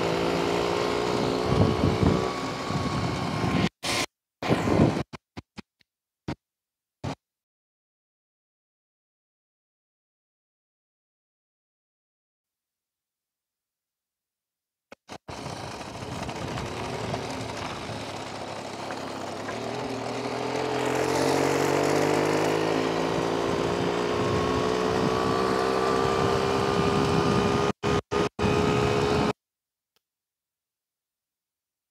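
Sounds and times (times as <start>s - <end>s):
moped engine running: 0.0s - 3.8s, 15.0s - 29.3s.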